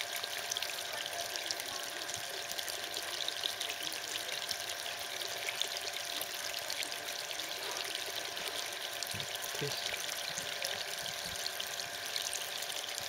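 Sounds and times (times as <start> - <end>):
water pouring and splashing: 0.0 - 13.0.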